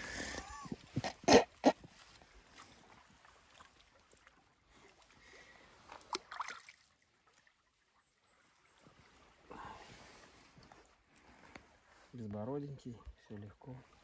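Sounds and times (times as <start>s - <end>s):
stream water: 0.0s - 14.0s
hand splashing in water: 6.0s - 6.8s.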